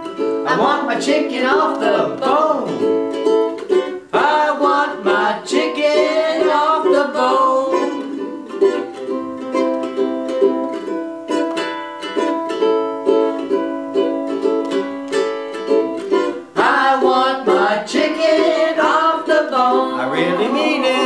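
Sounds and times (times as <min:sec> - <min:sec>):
person singing: 0:00.0 - 0:09.6, 0:16.1 - 0:21.0
ukulele strumming chords: 0:00.0 - 0:21.0.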